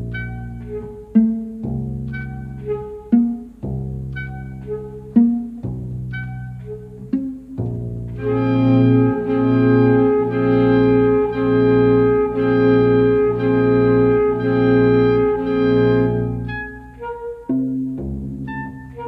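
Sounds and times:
held chord: 0:08.2 - 0:17.1.

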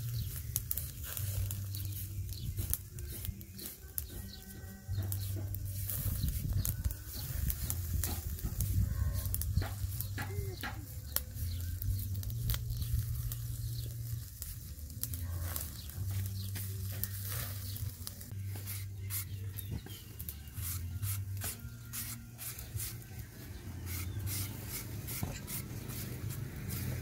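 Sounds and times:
crackles and pops of fire: 0:00.0 - 0:27.0
fish grilling over charcoal: 0:00.0 - 0:27.0.

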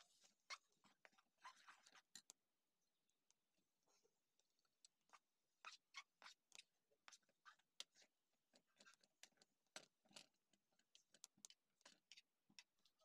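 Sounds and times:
spoon stirring in metal pan: 0:00.0 - 0:02.4, 0:05.1 - 0:13.0.

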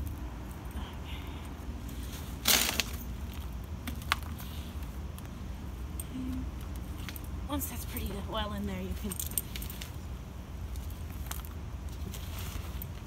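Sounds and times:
soil rustling: 0:00.0 - 0:05.8, 0:09.0 - 0:13.0
steady low hum: 0:00.0 - 0:13.0.

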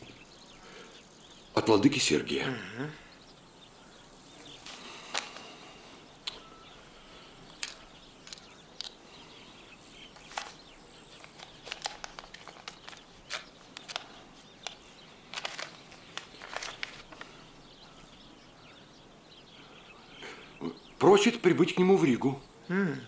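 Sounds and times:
paper rustling and crinkling: 0:04.6 - 0:05.5, 0:10.1 - 0:17.4.

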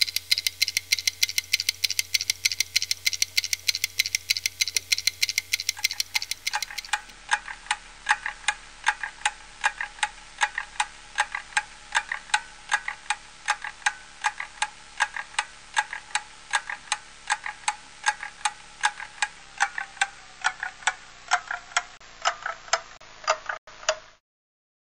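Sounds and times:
wall clock ticking: 0:00.0 - 0:24.0.

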